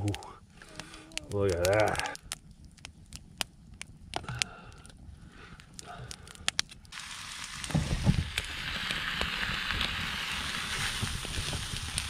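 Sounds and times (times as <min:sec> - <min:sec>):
campfire crackling: 0:00.0 - 0:12.0
fire hiss: 0:04.2 - 0:12.0.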